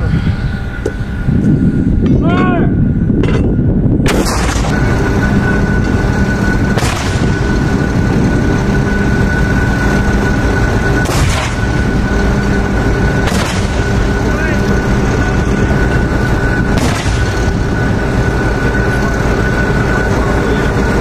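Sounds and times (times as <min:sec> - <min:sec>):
diesel engine rumble: 0:00.0 - 0:21.0
steady whine: 0:00.0 - 0:21.0
mortar rounds firing: 0:04.1 - 0:04.8, 0:06.8 - 0:07.3, 0:11.0 - 0:11.7, 0:13.2 - 0:14.2, 0:16.8 - 0:17.5.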